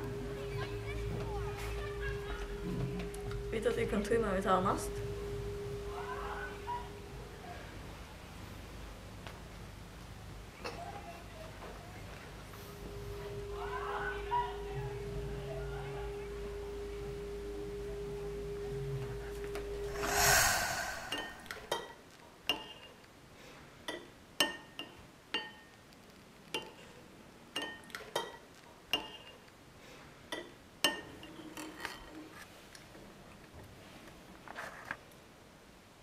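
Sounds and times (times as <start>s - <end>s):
short rush of noise: 19.8s - 21.7s.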